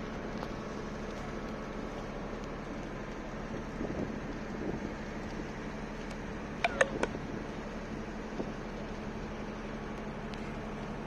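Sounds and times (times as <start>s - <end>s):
boat engine humming: 0.0s - 11.0s
sharp clicks: 6.6s - 7.2s.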